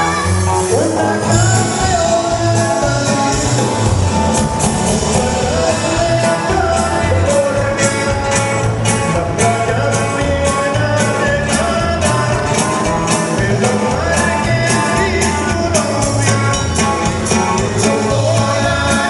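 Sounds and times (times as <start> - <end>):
person singing: 0.0 - 19.0
pulsing bass line: 0.0 - 19.0.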